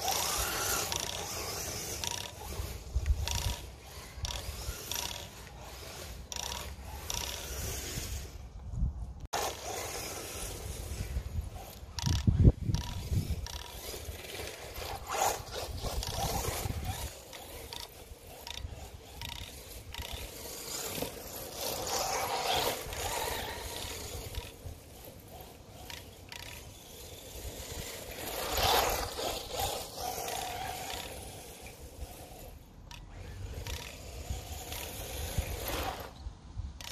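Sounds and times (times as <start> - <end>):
electric toy car motor whirring: 0.0 - 36.2.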